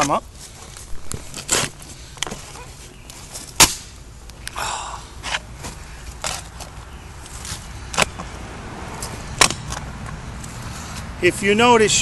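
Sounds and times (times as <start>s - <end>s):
shovel scraping through dirt: 0.0s - 4.0s, 5.2s - 6.7s
shovel chopping into soil: 3.4s - 4.0s, 7.5s - 8.3s, 9.0s - 9.8s.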